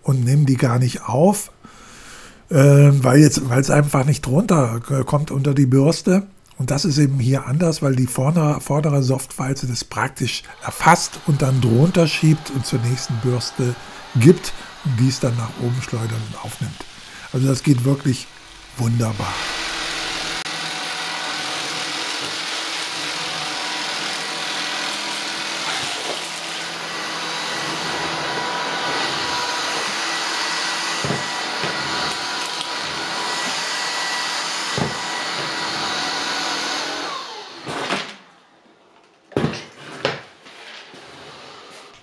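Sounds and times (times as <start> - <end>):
stick vacuum running: 10.5 - 38.2.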